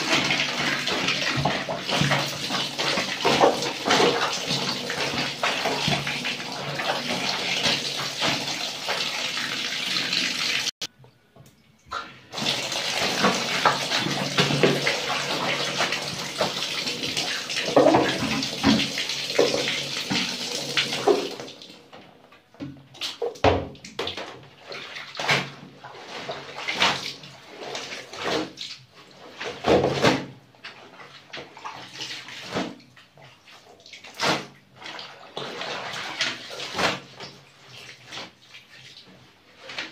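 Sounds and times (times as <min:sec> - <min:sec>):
water pouring into plastic basin: 0:00.0 - 0:10.7, 0:12.3 - 0:21.8
wet clothes sloshing and splashing: 0:00.0 - 0:10.7, 0:12.3 - 0:21.8, 0:22.8 - 0:39.9.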